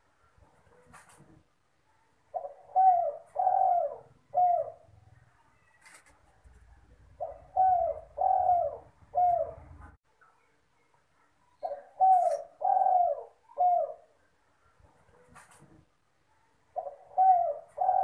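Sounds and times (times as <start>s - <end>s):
dove cooing: 2.3s - 10.0s, 11.6s - 14.2s, 16.8s - 18.0s.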